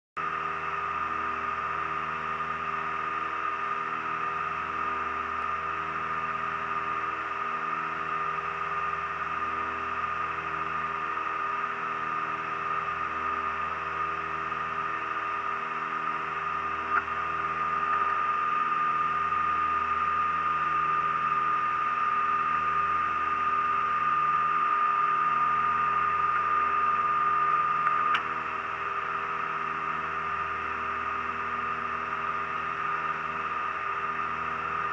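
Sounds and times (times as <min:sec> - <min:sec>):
steady whine: 0:00.2 - 0:34.9
airplane engines droning: 0:16.6 - 0:19.6.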